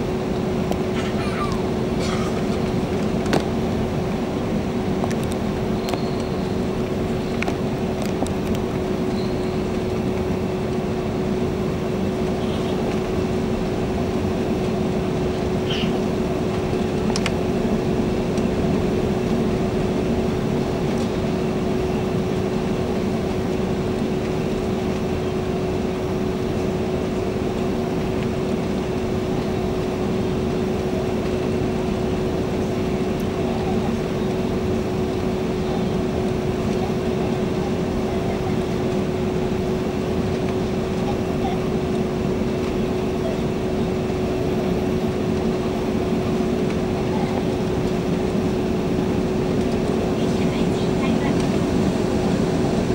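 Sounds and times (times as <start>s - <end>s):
airplane cabin roar: 0.0s - 52.9s.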